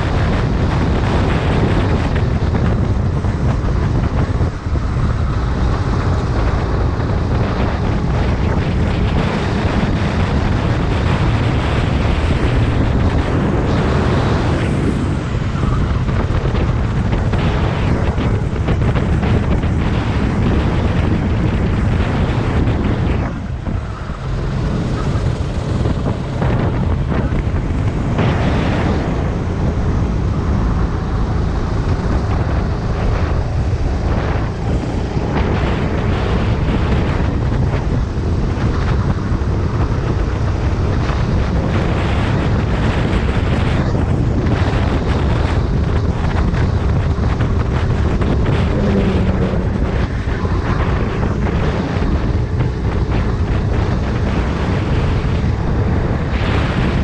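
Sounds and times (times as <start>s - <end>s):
wind buffeting microphone: 0.0s - 57.0s.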